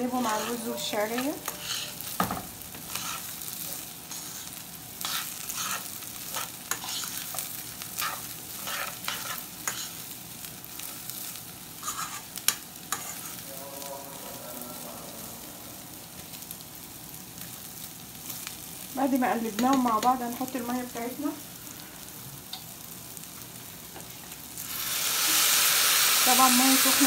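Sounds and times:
rice sizzling in hot oil: 0.0s - 27.0s
spoon scraping metal pot: 0.1s - 2.0s, 11.8s - 13.4s.

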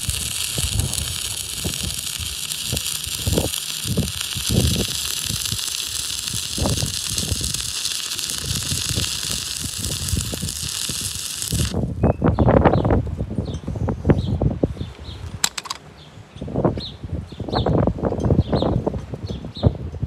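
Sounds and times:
welding arc crackling hiss: 0.0s - 12.0s.

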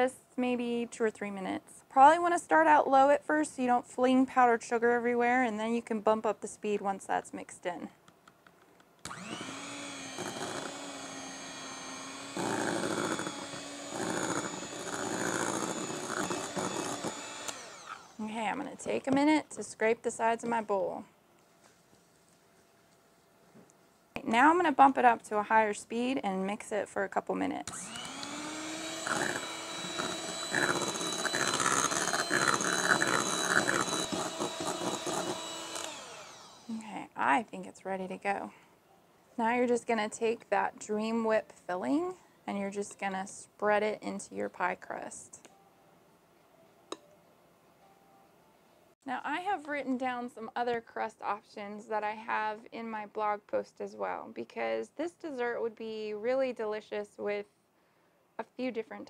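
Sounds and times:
beaters churning thick mixture: 9.1s - 18.2s, 27.8s - 36.6s
electric hand mixer whirring: 9.1s - 18.8s, 27.7s - 36.8s.

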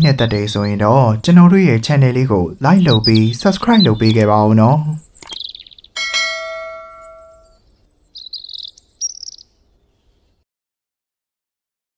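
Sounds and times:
chirpy tweets: 0.0s - 10.4s
bell chime ringing: 6.0s - 7.6s.

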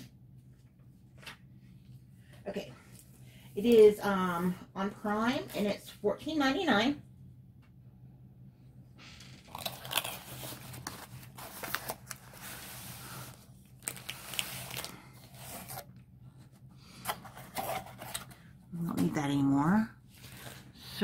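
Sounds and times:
cardboard box rustling and crinkling: 9.5s - 15.9s.

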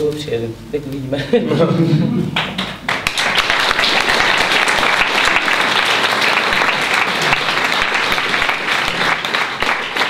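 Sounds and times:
audience applause: 2.4s - 10.0s.

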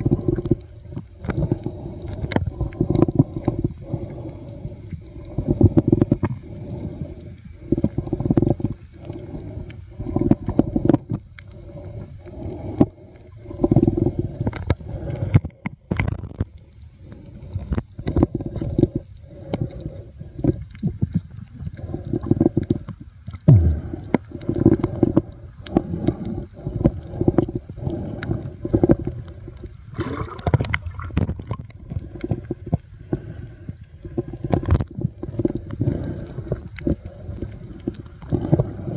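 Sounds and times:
muffled underwater sloshing: 0.0s - 38.9s.

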